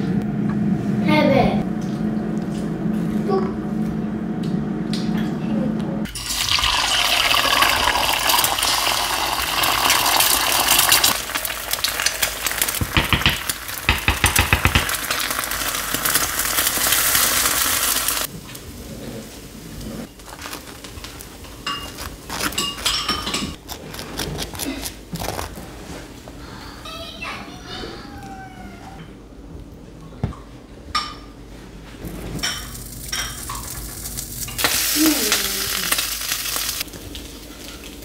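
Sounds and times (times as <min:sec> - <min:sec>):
eggs sizzling in a pan: 0:06.1 - 0:18.3, 0:32.0 - 0:38.0
sharp knocks and clicks: 0:12.8 - 0:14.9.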